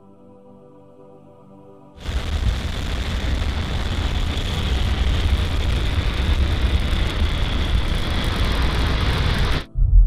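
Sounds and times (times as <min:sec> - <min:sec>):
crackling hiss: 0:02.0 - 0:09.7
rocket engine rumble: 0:02.0 - 0:09.7.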